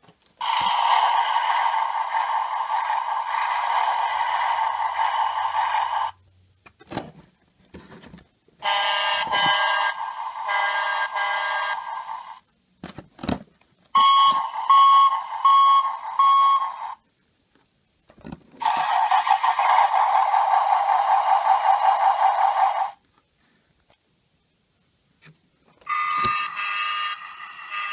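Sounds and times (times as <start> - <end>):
toy electronic sound effects: 0.4 - 6.1, 8.6 - 12.4, 14.0 - 17.0, 18.6 - 23.0, 25.8 - 27.9
even alarm-like beeps: 14.0 - 17.0, 25.9 - 27.9.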